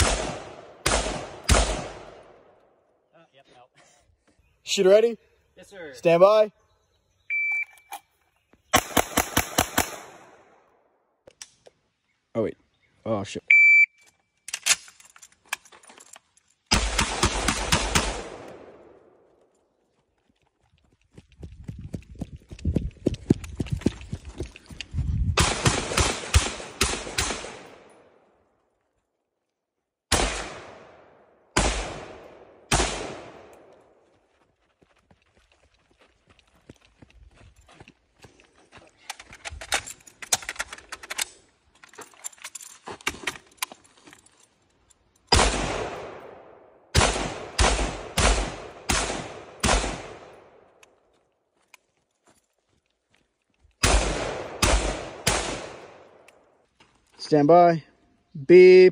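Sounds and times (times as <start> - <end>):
rifle shots: 0.0 - 2.5, 8.7 - 10.6, 16.7 - 19.1, 25.4 - 28.0, 30.1 - 33.7, 45.3 - 50.7, 53.8 - 56.3
rifle clicking and rattling: 14.4 - 16.7, 39.0 - 45.3
running footsteps on grass: 19.7 - 25.4, 33.7 - 39.3, 51.0 - 53.8.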